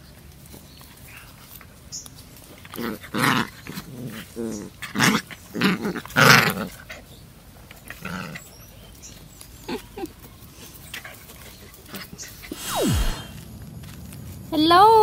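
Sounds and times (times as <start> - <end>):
puppies growling and yelping: 2.8 - 7.2.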